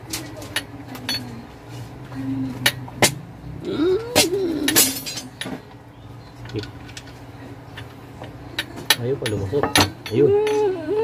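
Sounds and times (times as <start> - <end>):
short wavering voice-like hum: 3.6 - 4.8.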